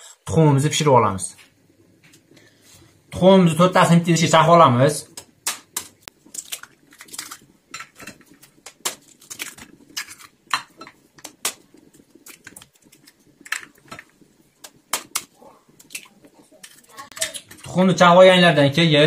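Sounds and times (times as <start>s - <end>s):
knife cracking egg shells: 5.2s - 14.0s.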